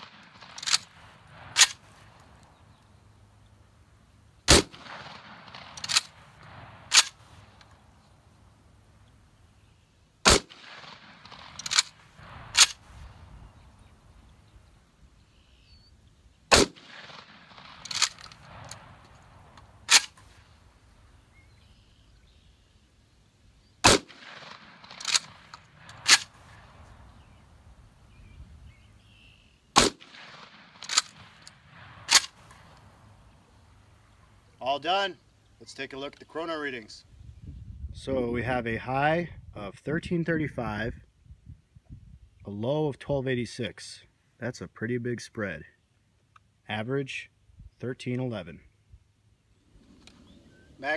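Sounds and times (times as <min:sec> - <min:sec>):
shotgun shots: 0:00.0 - 0:02.2, 0:04.4 - 0:07.5, 0:10.2 - 0:13.2, 0:16.5 - 0:20.5, 0:23.8 - 0:27.0, 0:29.7 - 0:33.0
shotgun bolt metallic clacks: 0:00.0 - 0:02.9, 0:04.5 - 0:07.8, 0:10.3 - 0:12.9, 0:16.5 - 0:20.4, 0:23.8 - 0:26.5, 0:29.8 - 0:32.9.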